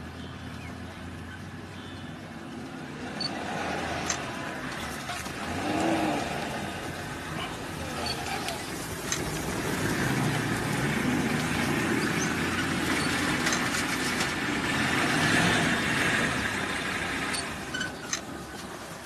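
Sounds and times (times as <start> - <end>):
vehicle engine running: 0.0 - 19.0.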